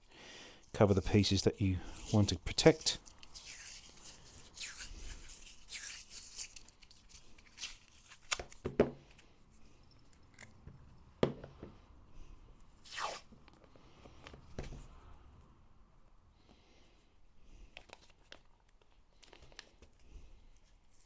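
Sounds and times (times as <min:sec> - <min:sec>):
masking tape pulled and torn: 0:02.0 - 0:08.6, 0:12.8 - 0:13.3.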